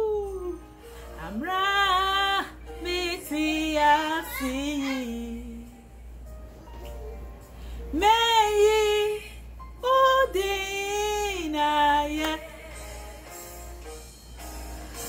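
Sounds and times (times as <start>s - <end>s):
woman singing slow melody: 0.0s - 6.1s, 7.9s - 13.3s.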